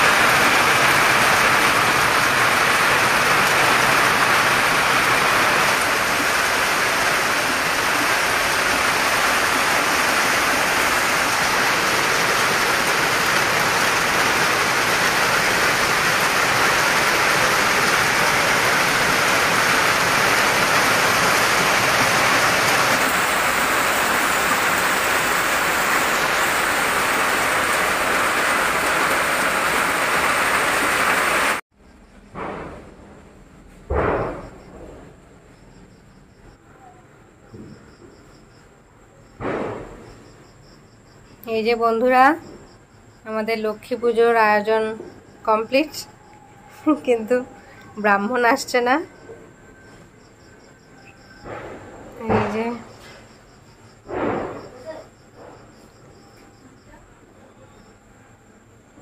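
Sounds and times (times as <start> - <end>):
heavy rain pouring: 0.0 - 31.6
water running off roof edge: 0.0 - 31.6.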